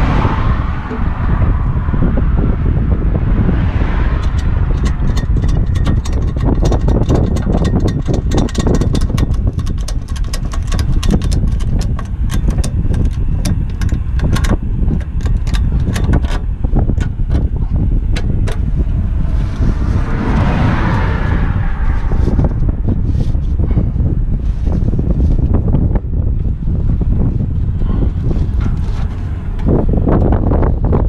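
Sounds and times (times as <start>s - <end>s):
road rumble of tyres and wind: 0.0s - 31.0s
sharp clicks and rattles: 4.1s - 21.1s, 28.0s - 31.0s.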